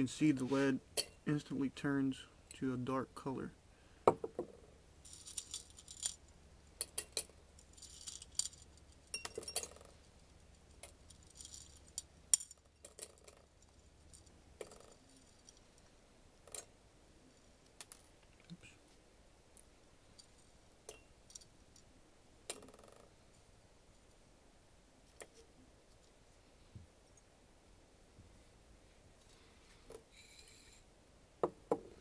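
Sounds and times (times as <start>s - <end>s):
metal pieces clinking against glass: 5.0s - 6.2s, 6.8s - 9.9s, 10.8s - 13.4s.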